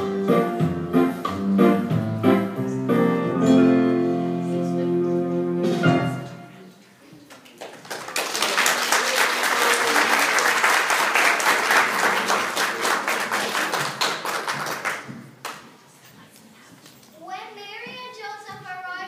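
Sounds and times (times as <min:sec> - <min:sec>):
audience applause: 0:07.4 - 0:15.6.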